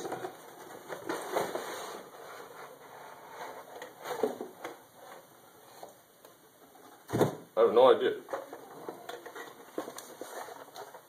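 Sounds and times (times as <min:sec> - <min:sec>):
cardboard box rustling and scraping: 0:00.0 - 0:04.5, 0:08.6 - 0:11.0.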